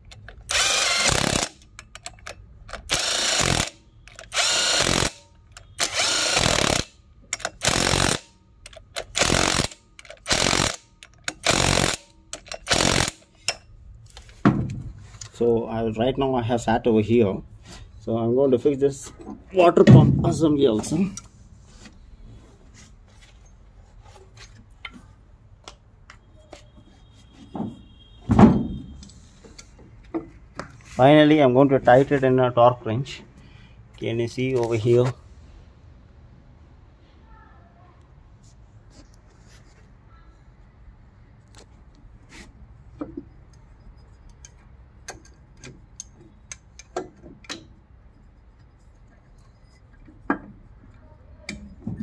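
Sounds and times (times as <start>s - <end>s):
metal engine parts clinking: 1.4s - 3.2s, 43.0s - 52.0s
metallic clicks and taps: 1.6s - 2.9s, 8.6s - 9.1s, 43.0s - 47.8s
thumps of part on engine: 14.4s - 15.0s.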